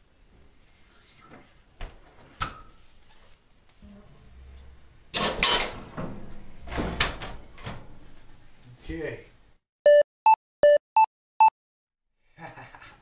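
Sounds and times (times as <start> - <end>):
metal clank: 5.1 - 8.3
metal stove door scraping open: 5.1 - 8.5.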